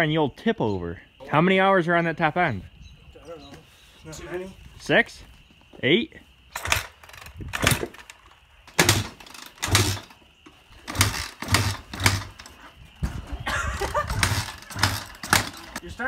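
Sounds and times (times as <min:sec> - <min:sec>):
dirt bike kick-start thumps: 0:06.5 - 0:15.8.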